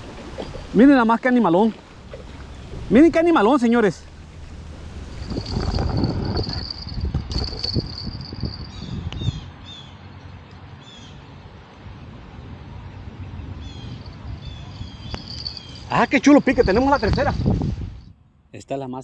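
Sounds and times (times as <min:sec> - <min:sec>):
low rumble: 0:04.0 - 0:09.2
small birds chirping: 0:13.6 - 0:16.1.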